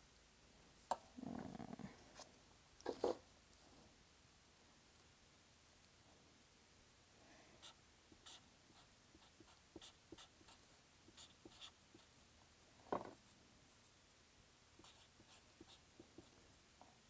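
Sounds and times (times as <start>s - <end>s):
pen scratching on paper: 7.6s - 12.2s, 14.8s - 16.3s.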